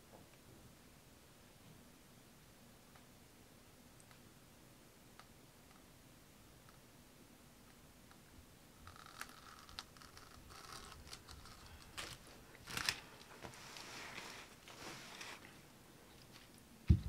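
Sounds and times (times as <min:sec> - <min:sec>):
crackling scrape: 0:08.8 - 0:16.6
rustling and crinkling plastic: 0:08.9 - 0:17.0.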